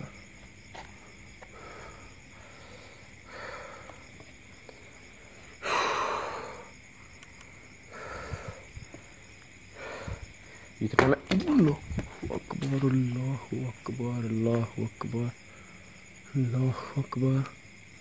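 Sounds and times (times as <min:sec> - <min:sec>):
man breathing heavily: 0:00.8 - 0:10.8, 0:15.4 - 0:16.1.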